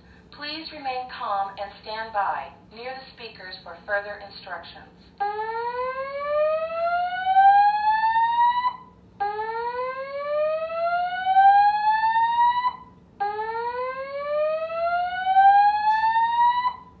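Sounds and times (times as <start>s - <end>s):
fire alarm whooping tone: 5.2s - 17.0s.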